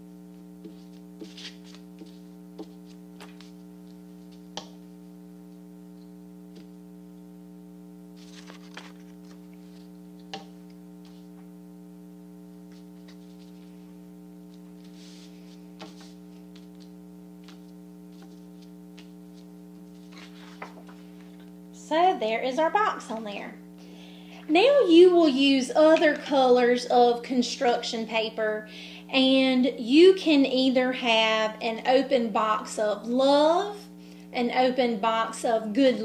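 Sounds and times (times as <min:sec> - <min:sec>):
electrical mains hum: 0:00.0 - 0:36.0
paper rustling: 0:00.7 - 0:04.4, 0:08.2 - 0:10.0, 0:12.7 - 0:13.8, 0:14.5 - 0:21.4.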